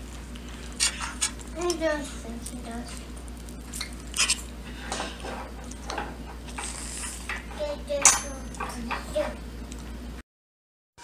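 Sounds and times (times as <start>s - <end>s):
fork scraping a plate: 0.8s - 1.4s, 3.8s - 7.5s
sharp ringing clink: 8.0s - 8.8s.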